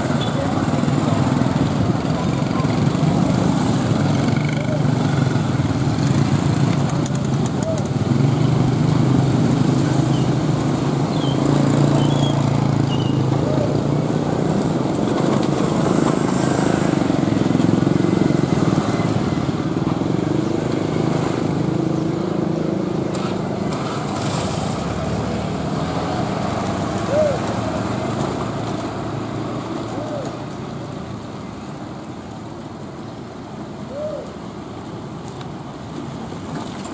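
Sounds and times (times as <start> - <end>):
motorcycle engines idling: 0.0 - 24.0
bird chirps: 11.1 - 13.6.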